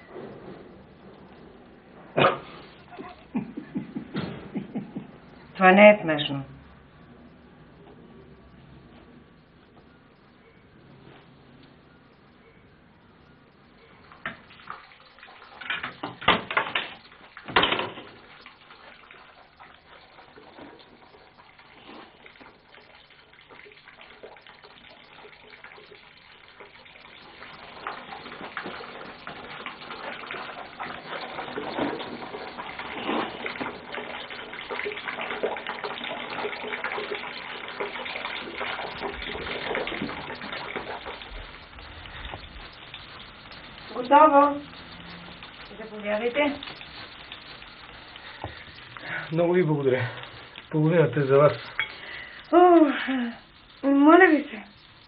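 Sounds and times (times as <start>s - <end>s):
food sizzling in frying pan: 14.0s - 55.0s.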